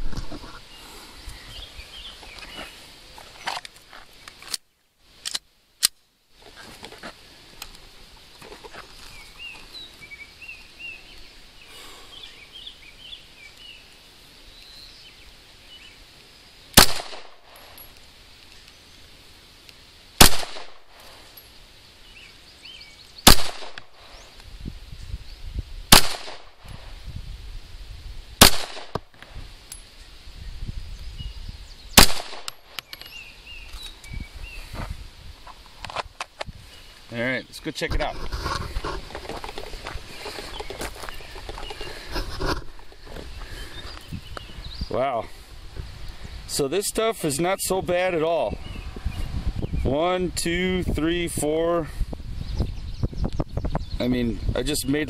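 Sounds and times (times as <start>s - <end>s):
small birds chirping: 0.4s - 5.0s, 7.2s - 26.9s, 29.0s - 35.8s, 36.5s - 55.0s
handgun shots with echo: 16.8s - 17.5s, 20.2s - 20.8s, 23.2s - 23.9s, 25.9s - 26.5s, 28.4s - 29.0s, 32.0s - 32.6s.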